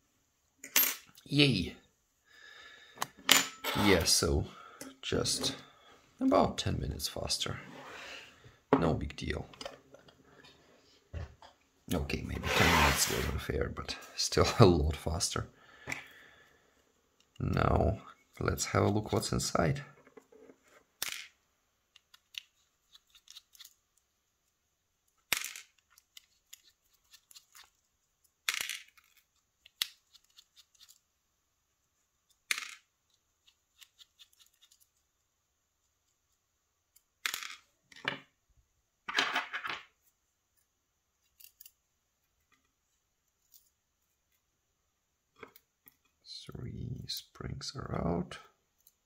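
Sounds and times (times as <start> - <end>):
small metallic clicks and scrapes: 21.9 - 23.8, 25.1 - 31.0, 32.3 - 35.0, 40.5 - 41.8, 43.3 - 44.4
parts dropping onto plastic tray: 37.2 - 38.3, 39.0 - 39.9.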